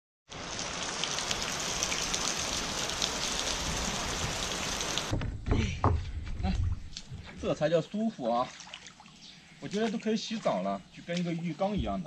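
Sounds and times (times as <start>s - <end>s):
rain pattering on ground: 0.3s - 5.1s.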